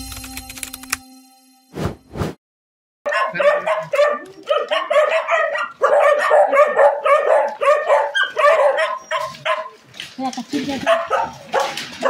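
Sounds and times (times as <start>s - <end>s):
many dogs barking: 3.1s - 9.9s, 10.6s - 12.0s.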